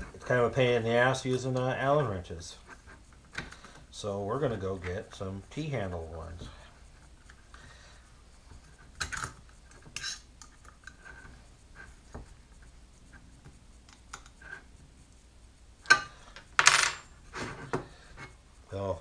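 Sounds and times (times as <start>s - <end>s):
metal hardware clicking and clinking: 8.9s - 11.3s, 15.8s - 17.2s.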